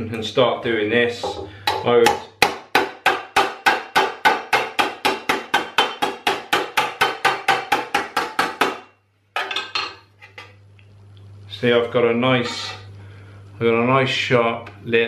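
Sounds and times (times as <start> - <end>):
hammer striking sheet metal: 1.2 - 9.7.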